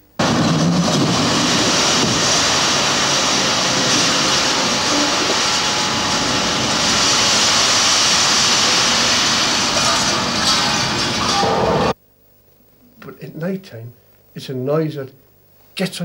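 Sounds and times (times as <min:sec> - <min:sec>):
industrial roar with hiss: 0:00.0 - 0:12.0.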